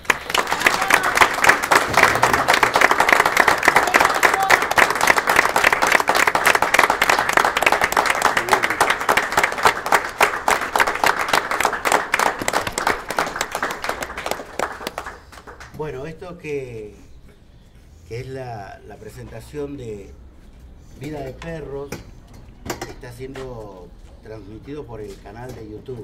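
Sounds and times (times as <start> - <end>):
audience applauding: 0.0 - 15.8.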